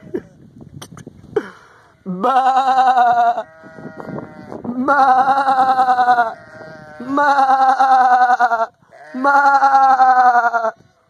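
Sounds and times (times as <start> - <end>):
sheep bleating: 2.0 - 10.8.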